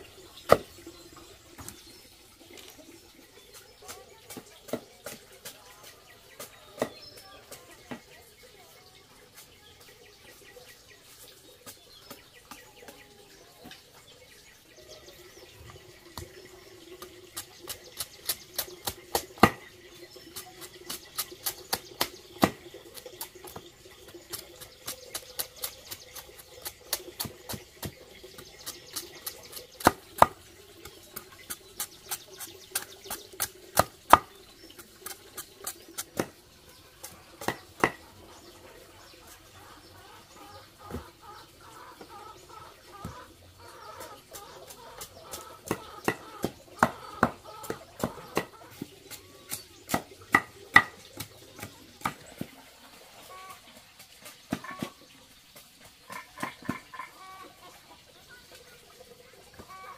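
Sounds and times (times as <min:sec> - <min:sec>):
knife chopping on wooden block: 0:17.9 - 0:19.6, 0:37.0 - 0:38.0, 0:45.3 - 0:52.2.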